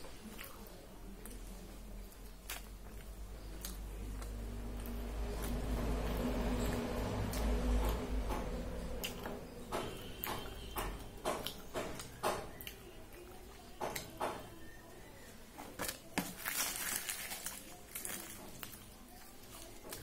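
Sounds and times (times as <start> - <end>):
chewing with wet mouth clicks: 0.3 - 14.2
fried bread tearing crackle: 15.8 - 20.0.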